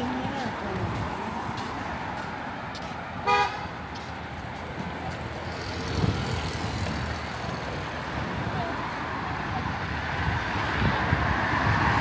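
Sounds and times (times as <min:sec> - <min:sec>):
street traffic: 0:00.0 - 0:12.0
vehicle horn toot: 0:03.2 - 0:03.7.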